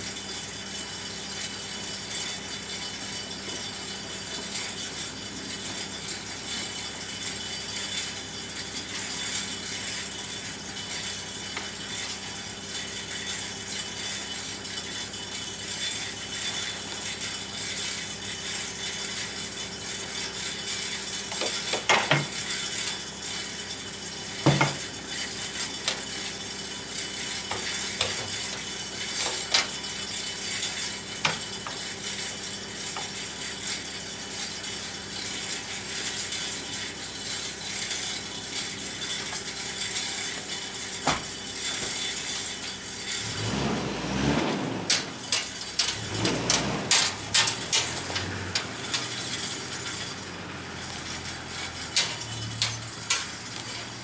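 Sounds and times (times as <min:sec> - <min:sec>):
metal clinks and knocks: 0:20.6 - 0:33.3, 0:44.8 - 0:54.0.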